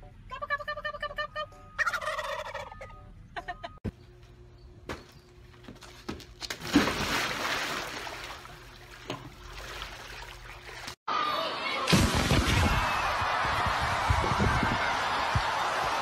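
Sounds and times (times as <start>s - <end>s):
turkeys gobbling: 1.8s - 3.6s
splash into swimming pool: 6.5s - 8.5s.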